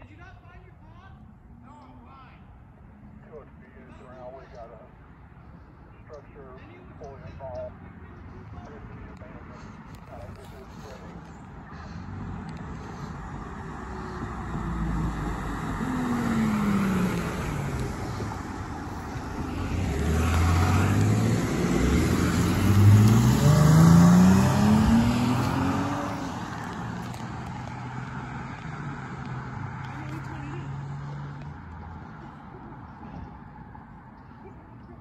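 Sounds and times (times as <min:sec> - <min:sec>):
emergency vehicles driving past: 0:02.6 - 0:35.0
police car accelerating by: 0:07.4 - 0:35.0.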